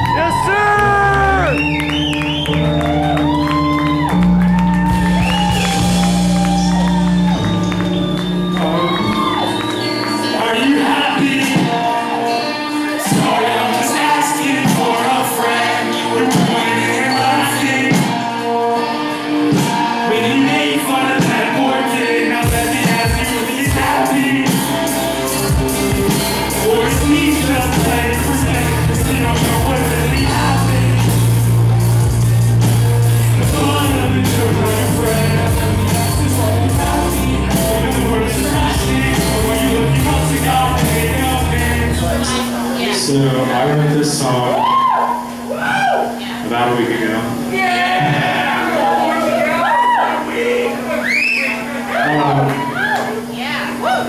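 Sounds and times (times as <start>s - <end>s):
crowd shouting: 0.0s - 1.6s, 2.7s - 10.2s, 47.6s - 54.0s
loud live music: 0.0s - 46.5s, 47.2s - 54.0s
band with steady beat: 4.8s - 9.8s, 19.5s - 20.1s, 22.4s - 42.6s
person singing into a microphone: 8.5s - 25.1s, 25.9s - 45.1s.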